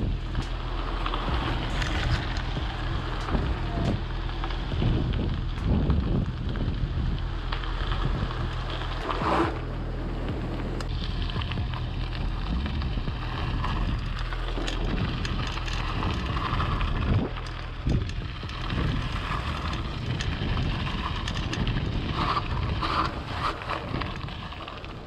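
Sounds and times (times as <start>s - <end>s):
tyres rolling over gravel: 0.0s - 25.0s
wind buffeting microphone: 0.0s - 25.0s.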